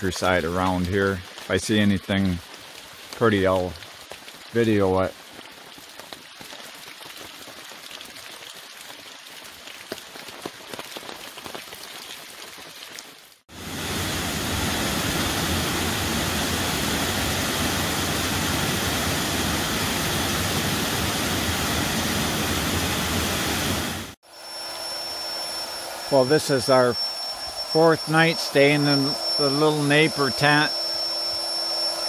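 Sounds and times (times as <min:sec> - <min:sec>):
rain falling: 0:00.0 - 0:24.2.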